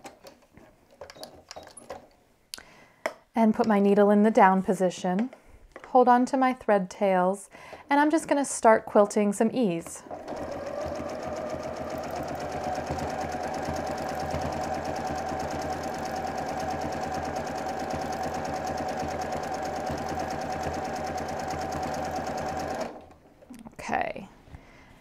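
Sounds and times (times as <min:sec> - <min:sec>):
sewing machine stitching rapidly: 0:10.1 - 0:23.1.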